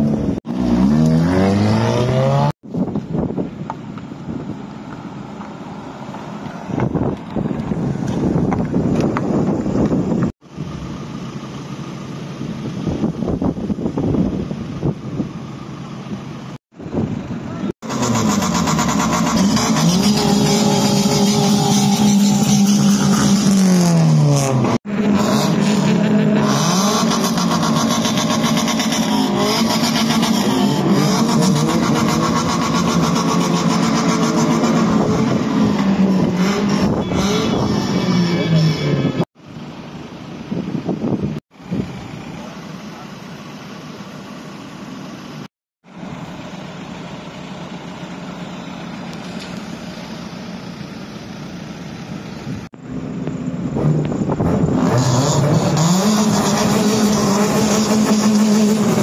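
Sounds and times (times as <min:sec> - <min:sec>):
car engine running and revving: 0:00.0 - 0:59.0
wind buffeting microphone: 0:06.7 - 0:10.3.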